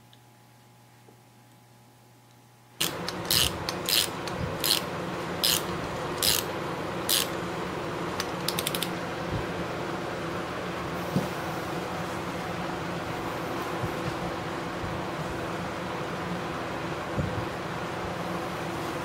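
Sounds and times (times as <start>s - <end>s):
ratchet wrench clicking: 2.8s - 6.5s, 7.1s - 7.4s, 8.2s - 8.9s.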